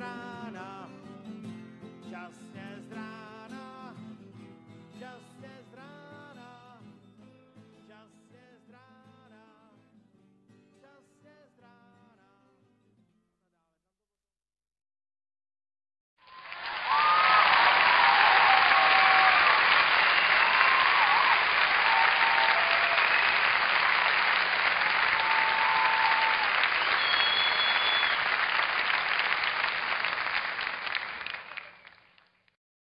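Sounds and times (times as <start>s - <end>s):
audience applauding: 16.2s - 32.4s
short whistles: 25.2s - 28.4s.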